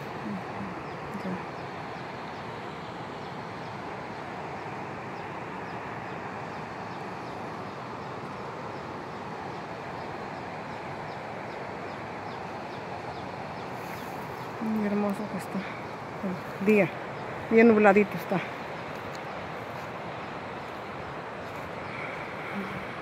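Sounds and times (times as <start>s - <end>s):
river rushing: 0.0s - 23.0s.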